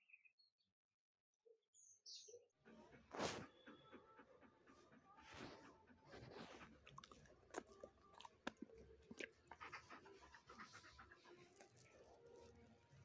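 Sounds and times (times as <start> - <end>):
dog panting: 2.6 - 12.8.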